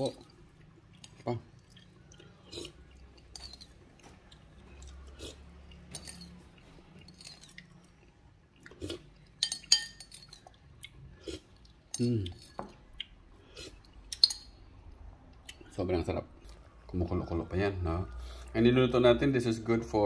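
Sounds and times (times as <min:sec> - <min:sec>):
cutlery clinking on dishware: 0:09.4 - 0:10.4.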